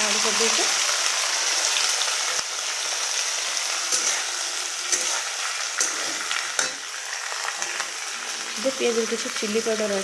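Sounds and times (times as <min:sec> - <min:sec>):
onions sizzling in hot oil: 0:00.0 - 0:10.0
metal spatula scraping a pan: 0:03.6 - 0:07.9.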